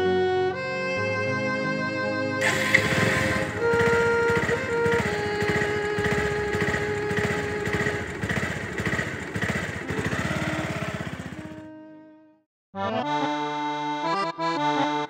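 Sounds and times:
motorcycle engine running: 2.4 - 11.7.

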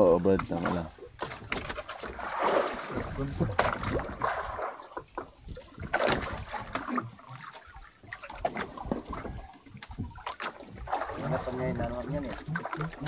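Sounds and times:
knocks and clicks on a boat: 0.2 - 2.0, 4.9 - 7.5, 8.1 - 10.8.

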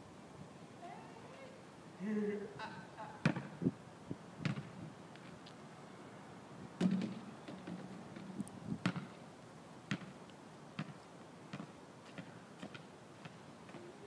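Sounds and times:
basketball bouncing on asphalt: 3.2 - 3.5, 4.4 - 4.8, 6.8 - 9.2, 9.9 - 10.2, 10.8 - 13.8.

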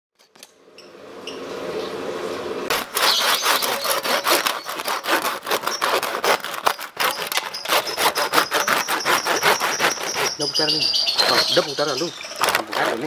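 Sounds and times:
hand saw scratching through crisp skin: 2.7 - 13.0.

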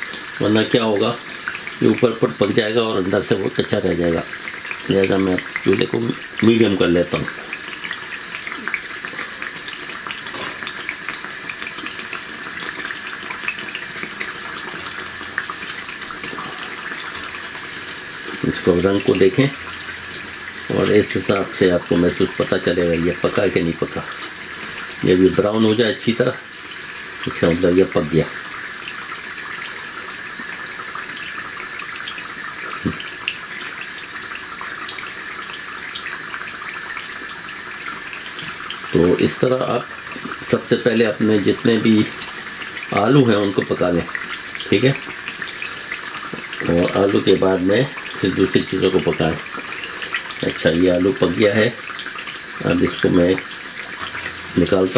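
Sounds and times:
deep-frying sizzle and crackle: 0.0 - 54.9.

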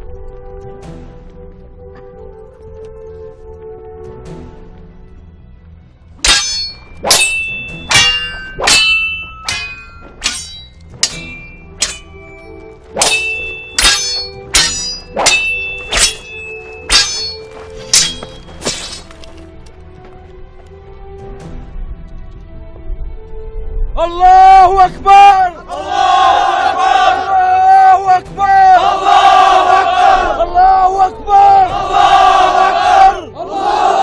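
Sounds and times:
background music: 0.0 - 34.0
swords clashing: 6.2 - 12.4, 13.0 - 19.3.

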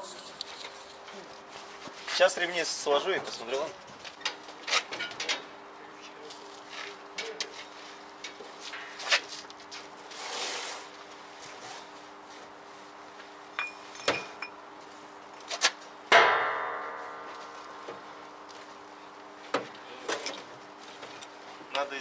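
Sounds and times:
loud metal clang: 16.1 - 18.1.

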